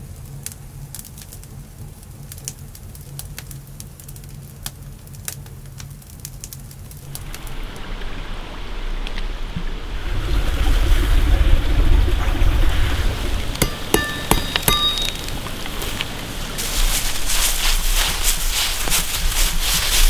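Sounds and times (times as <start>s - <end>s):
campfire crackling and popping: 0.0s - 8.3s, 13.4s - 20.0s
low steady rumble: 6.9s - 20.0s.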